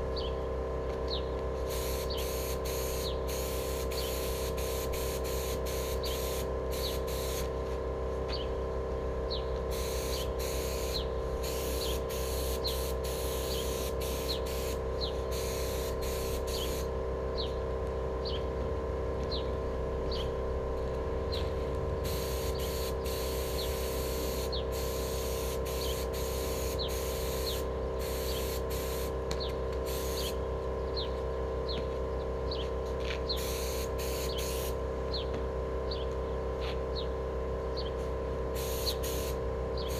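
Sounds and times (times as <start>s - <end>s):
steady mechanical hum: 0.0s - 39.9s
spray gun hissing in bursts: 1.6s - 7.8s, 9.6s - 17.0s, 22.0s - 30.4s, 33.3s - 34.8s, 38.5s - 39.9s.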